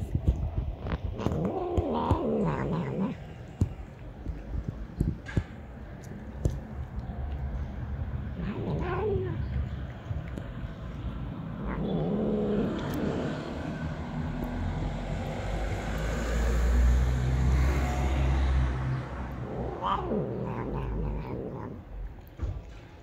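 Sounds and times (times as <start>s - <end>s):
cat eating: 0.0s - 16.4s, 19.1s - 23.0s
low rumble: 0.0s - 22.7s
cat calling: 1.2s - 3.3s, 8.4s - 9.6s, 11.6s - 13.2s, 19.4s - 21.9s
cat moaning: 1.2s - 3.4s, 8.2s - 9.7s, 11.4s - 13.6s, 19.3s - 21.9s.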